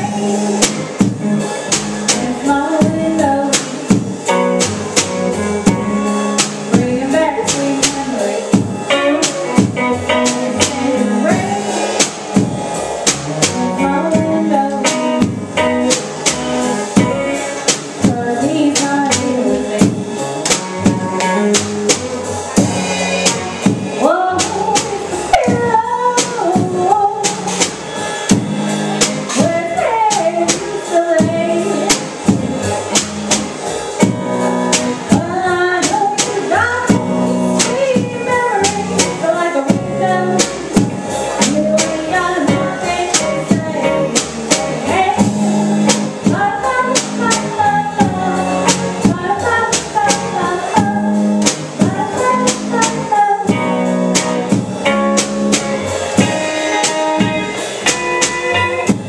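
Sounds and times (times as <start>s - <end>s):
woman singing into a microphone: 0.0s - 4.6s, 5.3s - 12.6s, 13.6s - 32.8s, 34.0s - 54.7s
drum kit beat on cymbals: 0.0s - 59.0s
guitar: 0.0s - 59.0s
upright bass: 0.0s - 59.0s.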